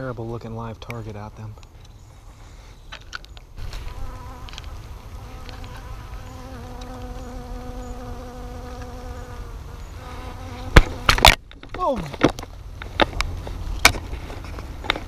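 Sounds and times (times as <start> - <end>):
bee buzzing: 3.6 - 11.4.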